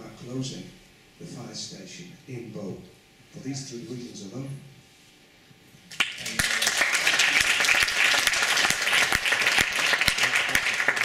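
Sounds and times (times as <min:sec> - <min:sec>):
audience applauding: 0:05.9 - 0:11.0.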